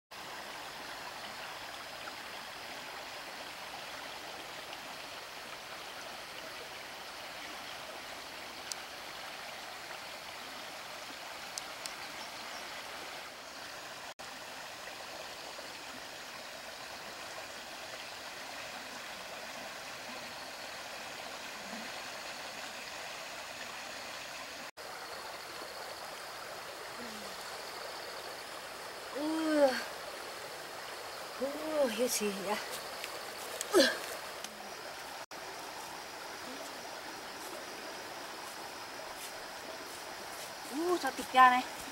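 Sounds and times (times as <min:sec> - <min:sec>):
creek water rushing: 0:00.1 - 0:41.9
faint ticks: 0:08.6 - 0:08.9, 0:11.5 - 0:12.1, 0:32.6 - 0:34.6.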